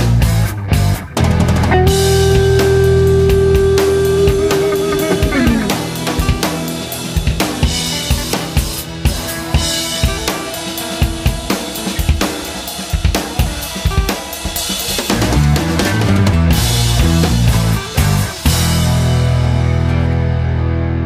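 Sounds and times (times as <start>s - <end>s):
heavy bass: 0.0s - 10.3s, 15.1s - 21.0s
background music with drum beat: 0.0s - 19.3s.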